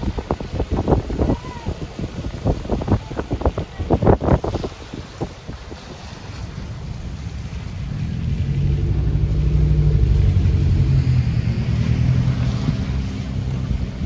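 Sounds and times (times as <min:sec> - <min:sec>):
vehicle engine passing by: 0:06.3 - 0:14.0.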